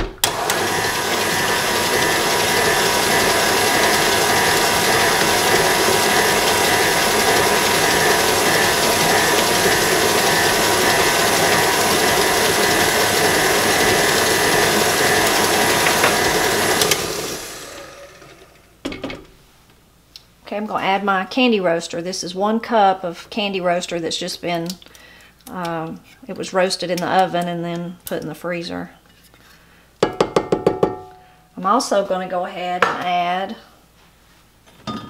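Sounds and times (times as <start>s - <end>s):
stand mixer motor whine: 0.2s - 18.7s.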